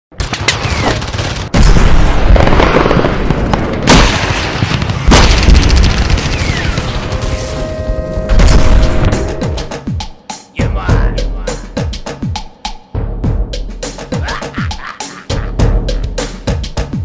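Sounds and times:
continuous gunfire: 0.1s - 7.5s
heavy explosions: 0.2s - 9.8s.

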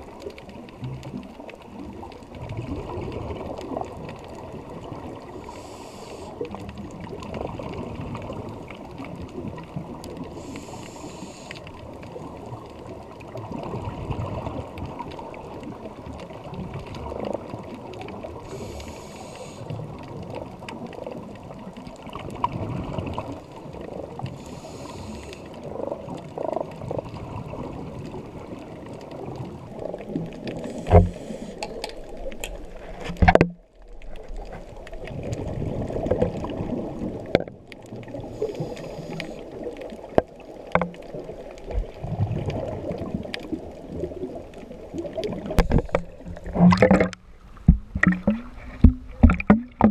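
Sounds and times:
exhaled air bubbling: 0.0s - 49.9s
diver inhaling through regulator: 5.4s - 6.5s, 10.3s - 11.7s, 18.5s - 19.7s, 24.3s - 25.6s, 30.6s - 31.8s, 38.2s - 39.5s.

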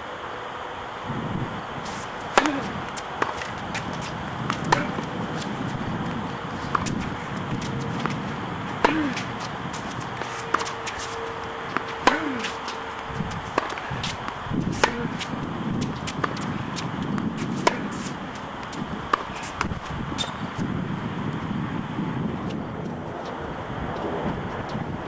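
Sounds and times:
outdoor background hiss: 0.0s - 25.0s
tennis ball hits and bounces: 1.8s - 20.4s.

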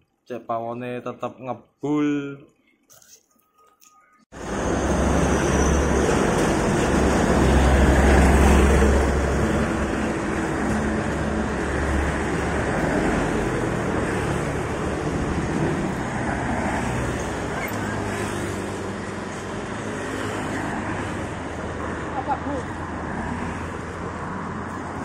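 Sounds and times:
road traffic passing: 4.3s - 25.0s.

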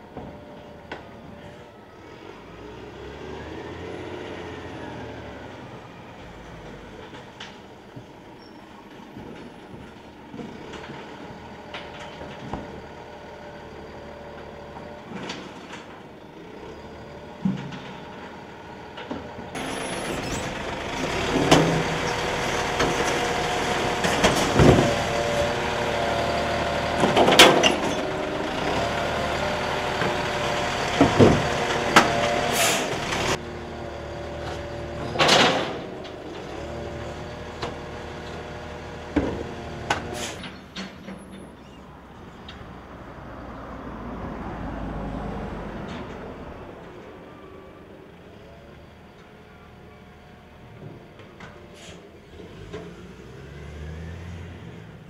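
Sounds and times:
diesel truck engine running: 0.0s - 43.1s
bins clanking and banging: 19.1s - 25.6s, 26.9s - 29.0s, 30.8s - 33.4s, 34.5s - 36.8s.

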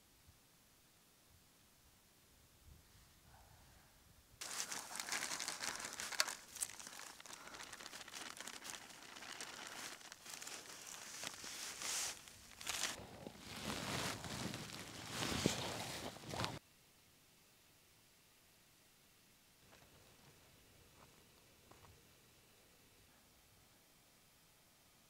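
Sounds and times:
dried food pouring into pot: 4.4s - 11.5s
plastic bag crinkling: 4.4s - 16.6s.

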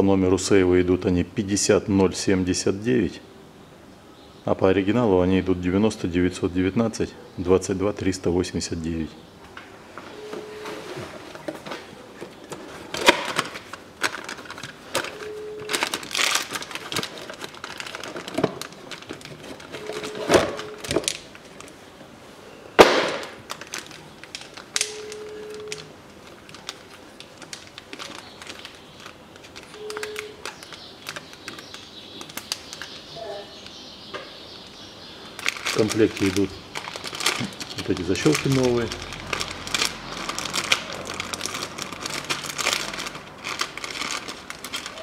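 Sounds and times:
packaging crackling: 12.4s - 21.8s, 22.8s - 33.8s, 35.2s - 45.0s
sharp knock: 22.8s - 23.3s.

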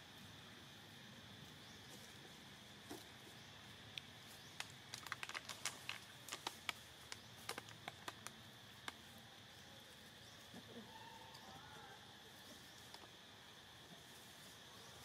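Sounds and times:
dry leaves crackling: 4.2s - 9.2s.

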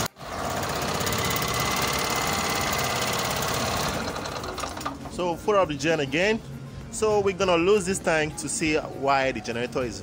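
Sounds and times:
small generator engine running: 0.0s - 5.0s.

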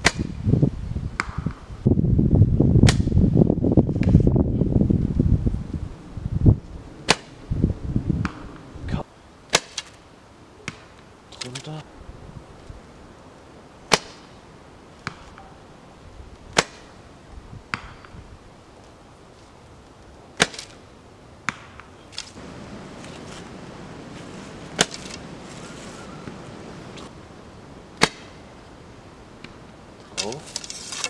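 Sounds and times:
arrow striking target: 0.0s - 0.4s, 1.2s - 1.6s, 2.8s - 3.2s, 7.0s - 7.4s, 9.5s - 10.0s, 13.9s - 14.3s, 16.5s - 16.9s, 20.4s - 20.8s, 24.7s - 25.2s, 28.0s - 28.4s.

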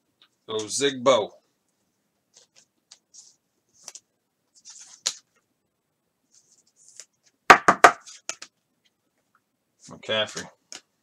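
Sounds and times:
trading cards rustling: 2.3s - 5.4s
sharp knocks: 7.5s - 8.1s.

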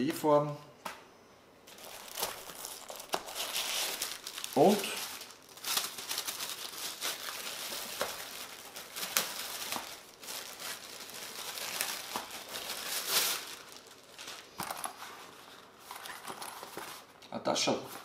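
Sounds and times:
plastic bag crinkling: 1.7s - 17.2s.

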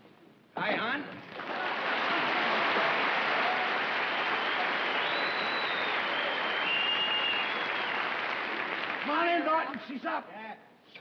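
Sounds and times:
studio audience applauding: 1.2s - 9.9s.

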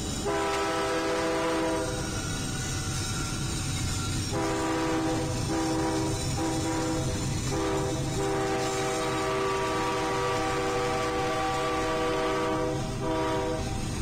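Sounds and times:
low rumble of passing train: 0.0s - 14.0s
locomotive air horn blasts: 0.2s - 2.0s, 4.3s - 13.8s.

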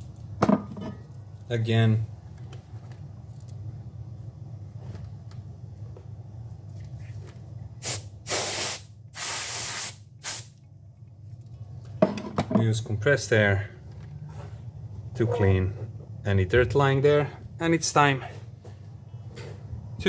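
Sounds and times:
compressed air hissing: 7.8s - 10.6s.

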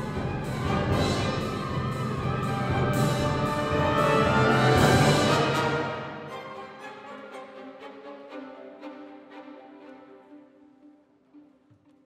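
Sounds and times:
timpani: 0.0s - 8.1s
brass: 0.0s - 8.5s
symphony orchestra playing: 0.0s - 11.6s.

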